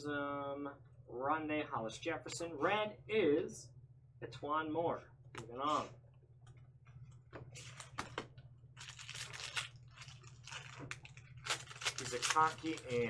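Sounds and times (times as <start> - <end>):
foil wrapper crinkling and tearing: 8.8 - 13.0.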